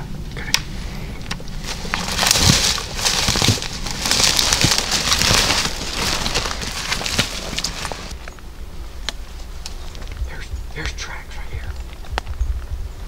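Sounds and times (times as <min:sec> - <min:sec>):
twigs snapping: 0:00.4 - 0:08.4
leaves rustling against clothing: 0:00.7 - 0:10.8
footsteps crunching through brush: 0:01.4 - 0:08.4.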